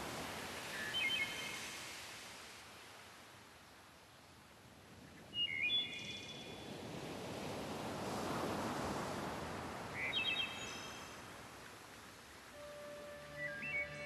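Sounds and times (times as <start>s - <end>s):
birds chirping: 12.6s - 14.0s.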